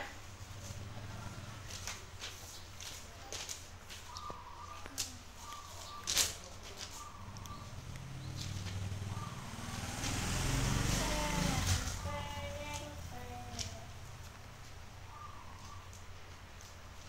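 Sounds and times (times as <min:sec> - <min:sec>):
motor vehicle passing: 0:00.0 - 0:17.0
paper rustle: 0:01.7 - 0:04.2, 0:04.8 - 0:07.1.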